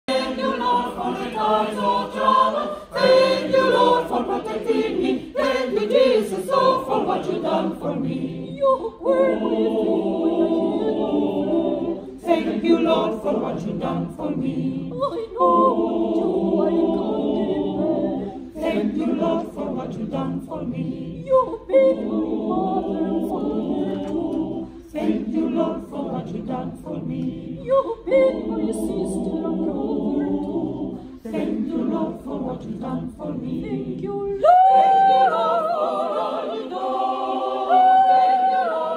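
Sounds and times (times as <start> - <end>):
mixed choir singing unaccompanied: 0.0 - 38.9
singers breathing: 2.6 - 3.0.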